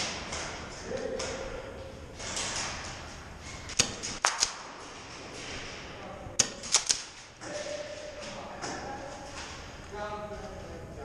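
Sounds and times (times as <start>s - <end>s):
airsoft gun shots: 3.7s - 4.8s, 6.4s - 7.2s.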